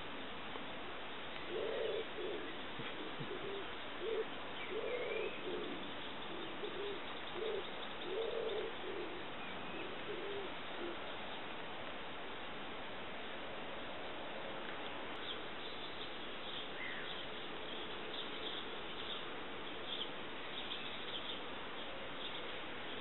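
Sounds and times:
bird low croaking notes: 1.4 - 11.1.

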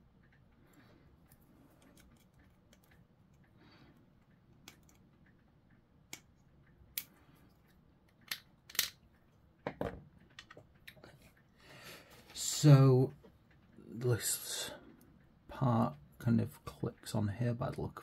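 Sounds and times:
plastic parts clicking: 8.1 - 9.0.

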